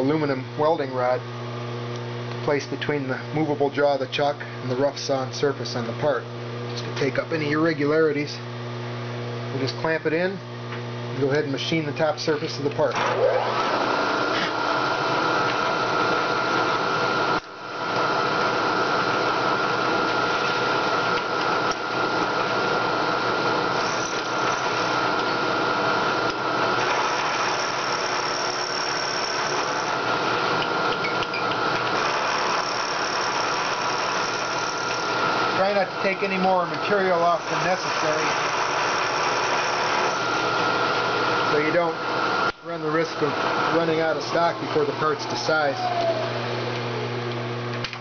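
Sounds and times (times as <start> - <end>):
milling machine cutting metal: 23.4 - 42.5.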